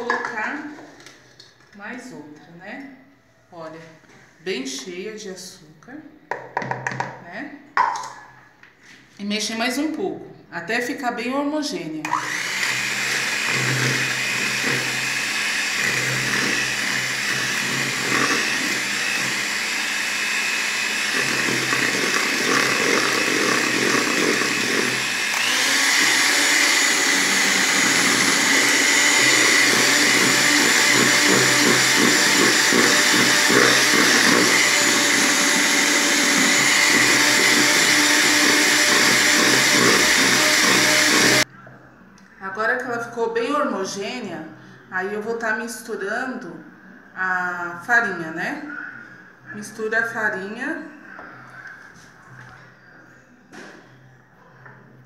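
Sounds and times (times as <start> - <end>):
electric hand mixer whisking: 12.1 - 41.5.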